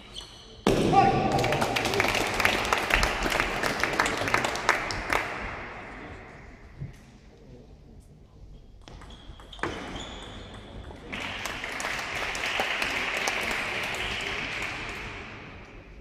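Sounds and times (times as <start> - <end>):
spectators applauding: 1.2 - 5.6, 11.1 - 15.4.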